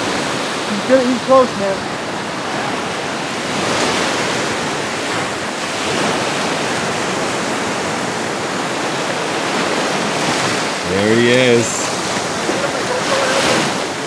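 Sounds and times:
small waves breaking on beach: 0.0s - 14.0s.

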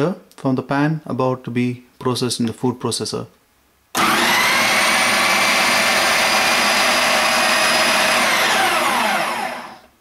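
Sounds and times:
food processor motor whine: 4.0s - 10.0s.

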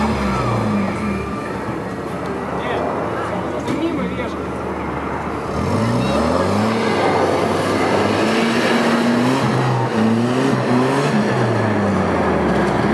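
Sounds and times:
off-road engine revving: 0.0s - 1.8s, 5.3s - 12.9s.

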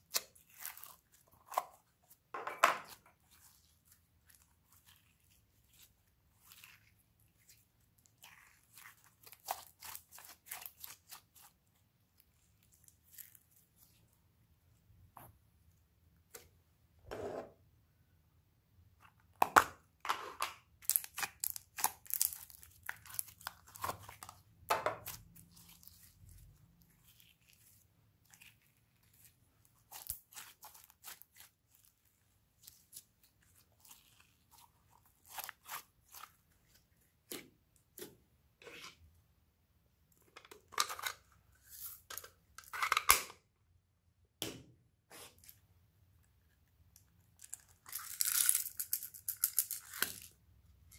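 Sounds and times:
slime crackling and tearing: 0.0s - 1.9s, 2.9s - 11.6s, 20.8s - 37.4s.

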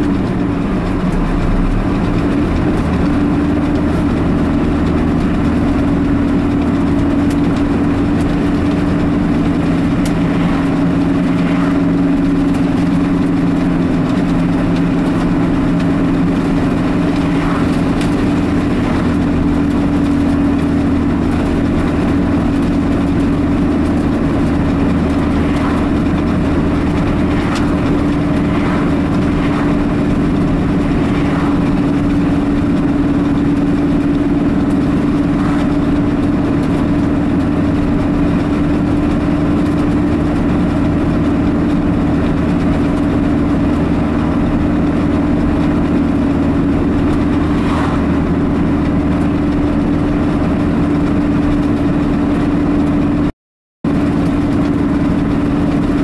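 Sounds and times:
vehicles passing by: 0.0s - 53.3s, 53.9s - 56.0s
car engine drone: 0.0s - 56.0s
tyre and road noise: 0.0s - 56.0s.

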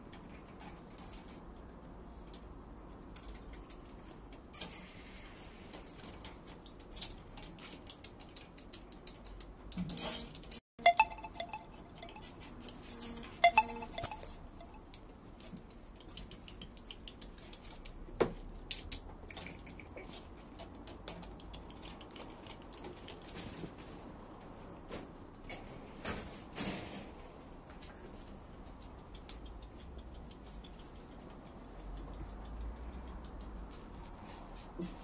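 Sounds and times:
light scattered ticking: 28.5s - 34.1s.

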